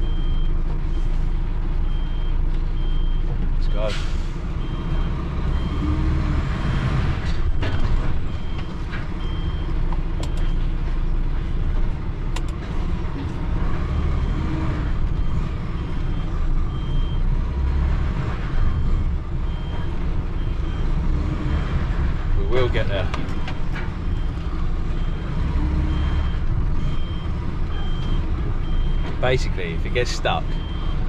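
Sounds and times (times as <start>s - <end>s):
reversing alarm beeps: 0.0s - 1.0s, 1.8s - 6.0s, 15.1s - 17.2s, 25.0s - 29.2s, 30.0s - 31.0s
diesel engine running: 0.0s - 31.0s.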